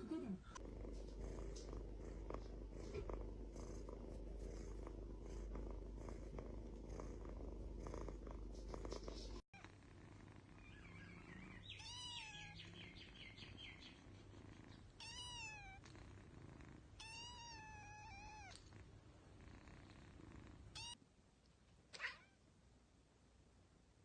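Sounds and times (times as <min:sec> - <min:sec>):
kitten purring: 0:00.0 - 0:21.0
kitten meowing: 0:11.8 - 0:12.6, 0:15.0 - 0:15.8, 0:17.0 - 0:18.6.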